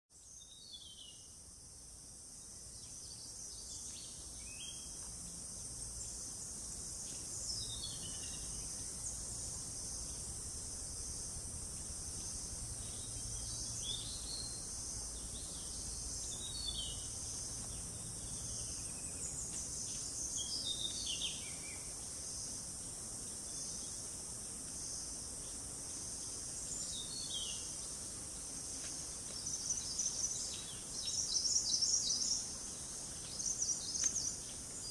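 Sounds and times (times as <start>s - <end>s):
insects droning: 0.1s - 34.9s.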